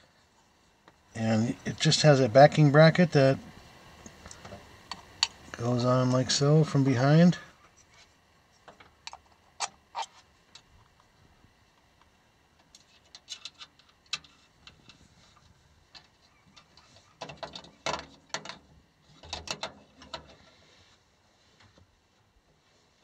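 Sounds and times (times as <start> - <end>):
metal clicks and rattles: 12.6 - 15.0, 17.2 - 20.4.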